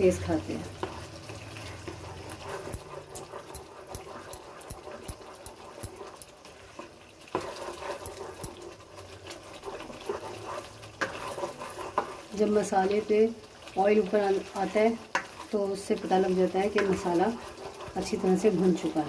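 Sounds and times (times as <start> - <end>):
masala sizzling and bubbling in oil: 0.0 - 19.0
plastic spatula scraping a wok: 0.8 - 13.0, 16.2 - 19.0.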